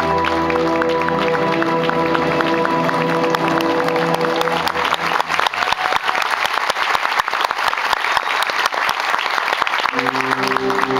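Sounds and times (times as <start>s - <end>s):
show music sustained notes: 0.0s - 6.8s, 9.8s - 10.9s
audience clapping: 0.0s - 10.9s.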